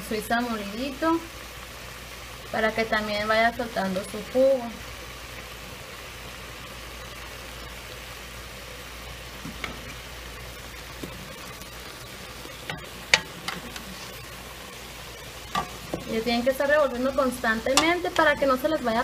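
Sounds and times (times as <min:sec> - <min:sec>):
pan cooking hiss: 0:00.0 - 0:19.0
wooden spatula striking pan: 0:12.6 - 0:13.9, 0:15.5 - 0:16.1, 0:17.7 - 0:18.5.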